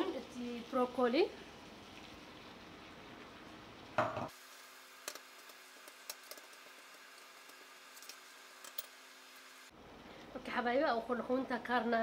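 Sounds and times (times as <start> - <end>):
vegetables sizzling in a wok: 0.0 - 12.0.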